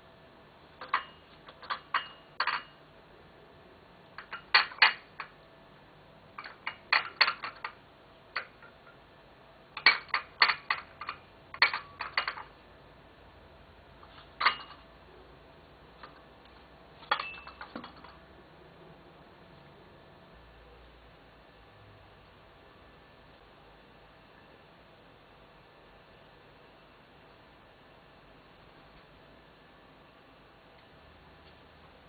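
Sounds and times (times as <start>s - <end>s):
dishes and cutlery clinking: 0.8s - 2.8s, 14.1s - 14.8s, 17.0s - 18.2s.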